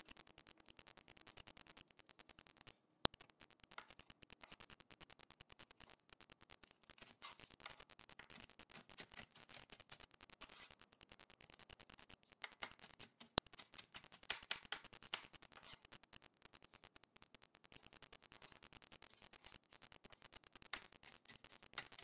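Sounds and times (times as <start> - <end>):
knife slicing green beans: 8.3 - 10.6, 12.4 - 15.8.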